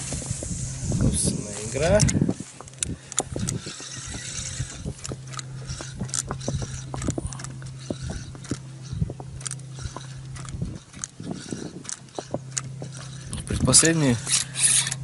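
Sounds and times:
fishing reel whirring: 0.0s - 15.0s
rod and reel clicks: 0.0s - 15.0s.

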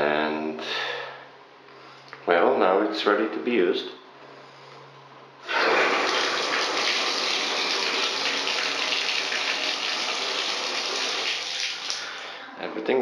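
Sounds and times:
water running into bathtub: 5.4s - 12.4s.

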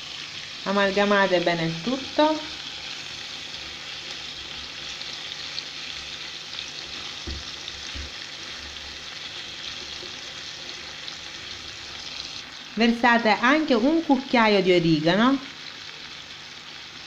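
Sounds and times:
food sizzling in a frying pan: 0.0s - 17.0s
spatula stirring in pan: 3.2s - 12.3s.

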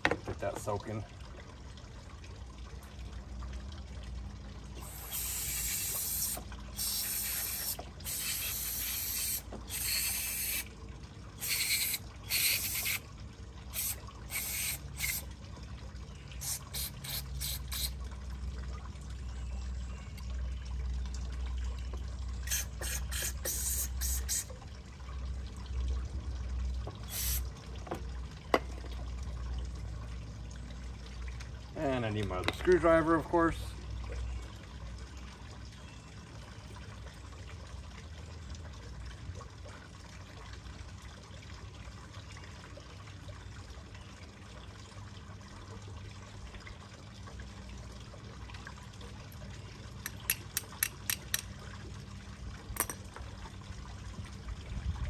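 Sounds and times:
aerosol spray hissing bursts: 4.8s - 10.6s, 11.4s - 13.0s, 13.8s - 15.2s, 16.4s - 17.9s, 22.5s - 24.4s, 27.1s - 27.4s.

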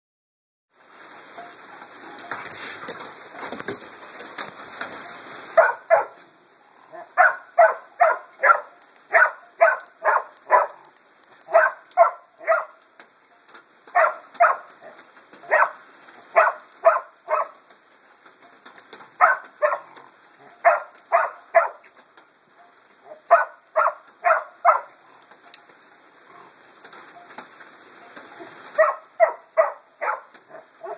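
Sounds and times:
dog barking: 5.6s - 6.2s, 6.9s - 10.8s, 11.5s - 12.8s, 13.9s - 17.6s, 19.2s - 21.9s, 23.0s - 25.0s, 28.7s - 30.9s.

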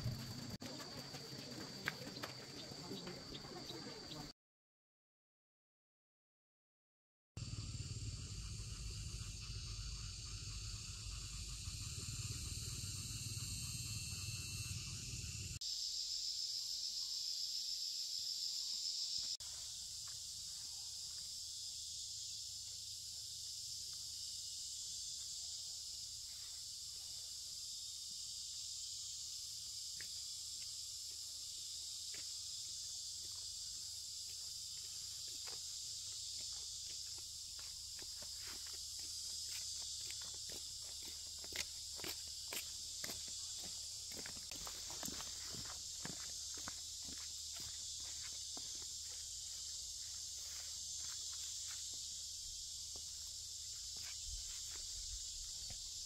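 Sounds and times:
high-pitched insect chorus: 0.0s - 4.3s, 7.4s - 56.0s
low rumble: 7.4s - 15.6s.

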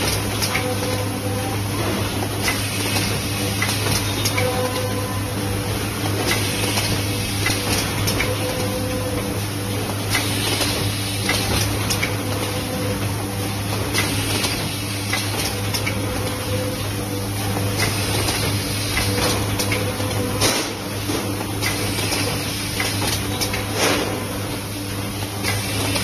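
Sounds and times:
machine hum and hiss: 0.0s - 26.0s
sharp pneumatic clicks: 10.1s - 12.1s, 13.9s - 15.9s, 21.6s - 24.1s.

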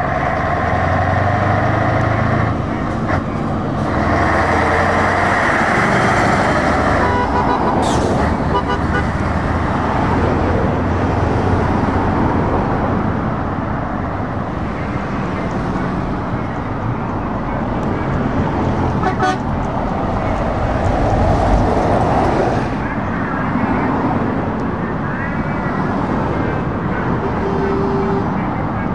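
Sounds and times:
traffic going by: 0.0s - 28.9s
truck engines passing: 0.0s - 28.9s
horn toot: 6.5s - 9.2s, 27.2s - 28.4s.

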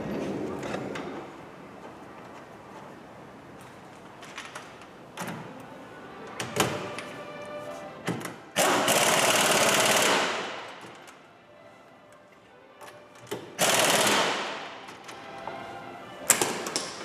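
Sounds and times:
impact wrench hammering: 8.6s - 11.0s, 13.6s - 15.0s.

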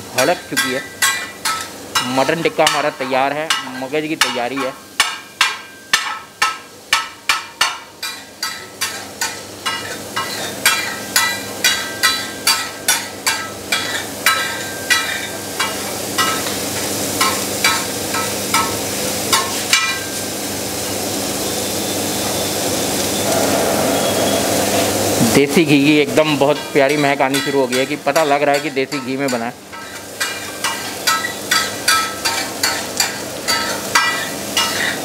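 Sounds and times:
spatula tapping iron griddle: 0.4s - 16.5s, 17.2s - 20.0s, 26.5s - 35.0s.

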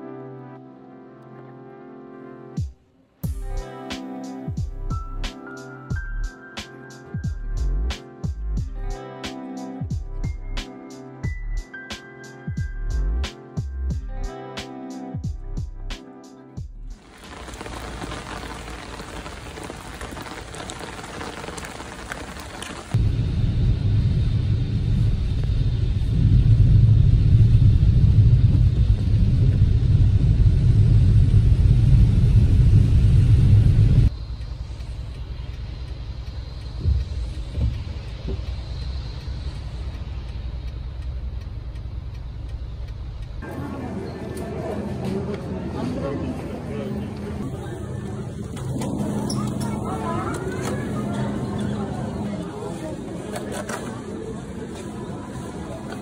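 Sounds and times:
rain pattering on a car: 17.0s - 23.0s, 34.1s - 43.5s, 47.4s - 56.0s
road rumble from a moving car: 17.0s - 56.0s.

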